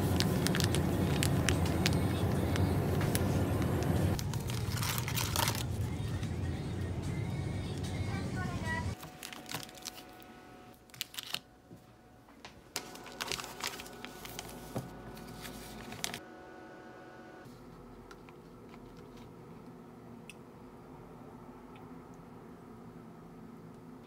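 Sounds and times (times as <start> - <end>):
plastic packaging crinkling: 0.0 - 5.8, 9.0 - 11.5, 12.8 - 16.2.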